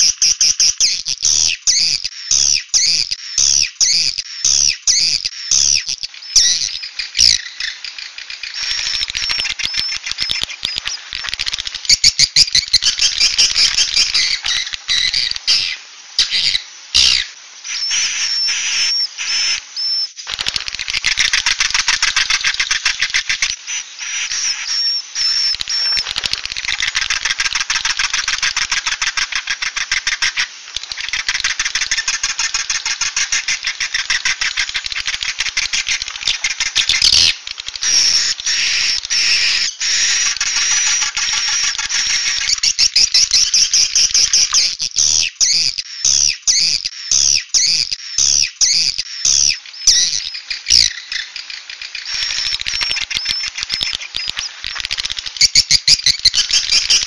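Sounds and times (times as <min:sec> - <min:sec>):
swiftlets twittering: 0:45.5 - 0:57.0.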